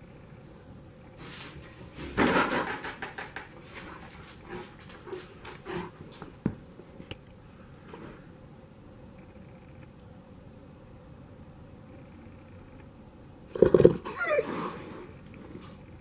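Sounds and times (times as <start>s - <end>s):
dog breathing and snuffling: 3.6s - 6.4s.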